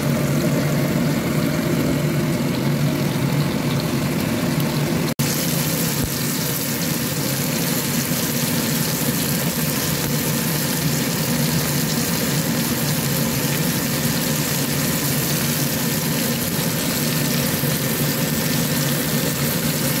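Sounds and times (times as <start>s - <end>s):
fish sizzling in oil: 0.0s - 20.0s.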